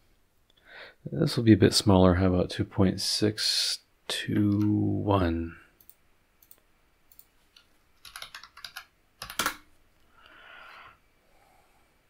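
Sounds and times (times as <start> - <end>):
computer keyboard typing: 8.0 - 9.7
soft hiss: 9.7 - 12.0.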